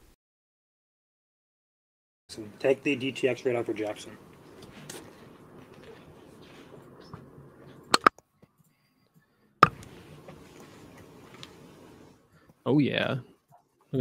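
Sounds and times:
faint room hiss: 2.3s - 7.9s.

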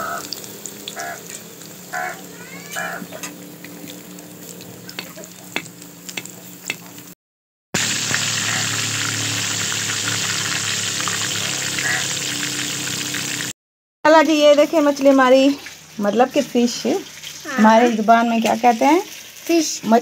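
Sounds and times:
fish deep-frying in oil: 0.0s - 7.2s, 7.8s - 20.0s
spoon clicking against pan: 5.0s - 6.9s.

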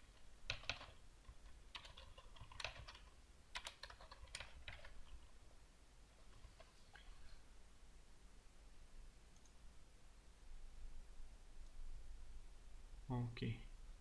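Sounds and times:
faint keyboard typing: 0.0s - 5.4s, 6.1s - 7.4s, 9.3s - 9.6s.

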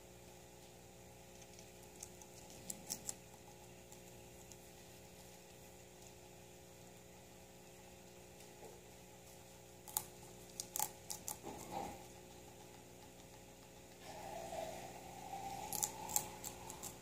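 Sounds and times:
faint steady hum: 0.0s - 17.0s
guinea pig chewing greens: 0.0s - 17.0s
sharp crunchy clicks: 9.8s - 14.0s.

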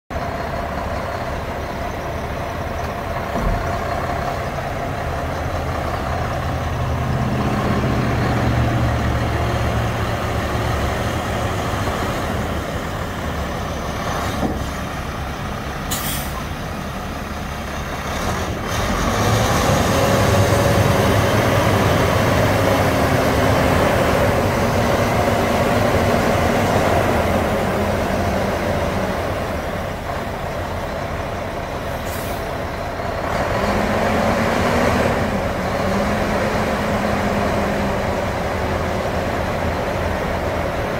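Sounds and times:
diesel truck idling: 0.1s - 40.9s
short air hisses: 15.9s - 16.4s, 32.0s - 32.5s.

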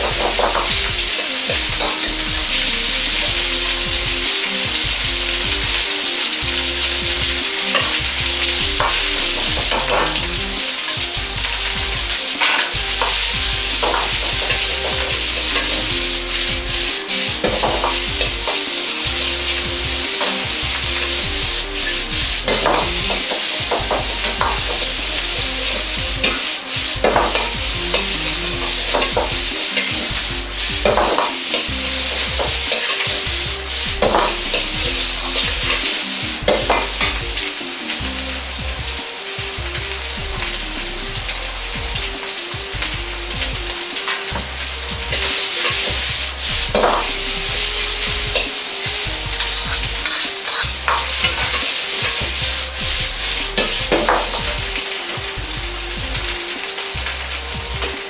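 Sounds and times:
food sizzling in a wok: 0.0s - 58.0s
metal ladle scraping wok: 5.7s - 37.3s, 44.1s - 55.1s.

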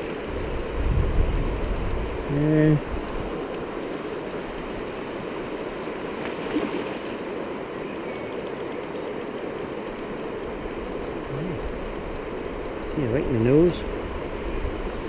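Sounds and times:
river water rushing over rapids: 1.4s - 15.0s.

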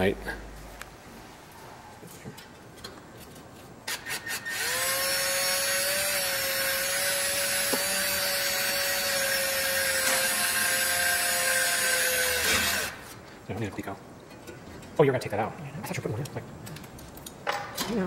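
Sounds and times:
cordless drill running: 4.0s - 13.0s.

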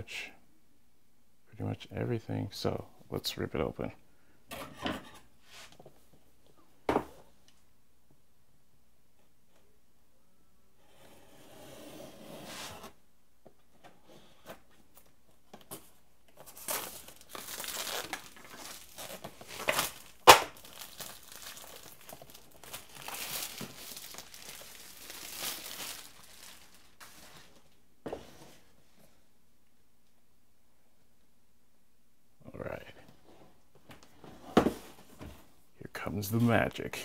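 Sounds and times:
plastic wrap crinkling and tearing: 16.4s - 27.5s
sharp plastic crack: 19.6s - 21.0s.

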